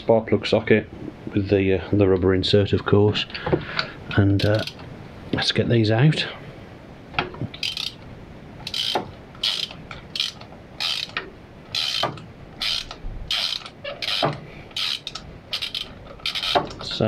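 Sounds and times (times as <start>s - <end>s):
socket ratchet clicking: 4.4s - 4.8s, 7.6s - 8.0s, 8.6s - 16.8s.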